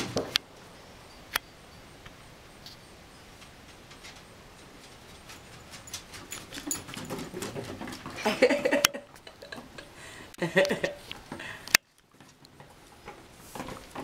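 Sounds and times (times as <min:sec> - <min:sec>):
dogs yipping: 0:05.3 - 0:08.1.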